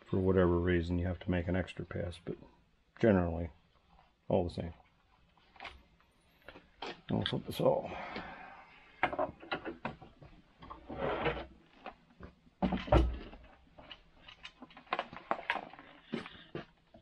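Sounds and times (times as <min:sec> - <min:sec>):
short scrape: 0:10.9 - 0:11.5.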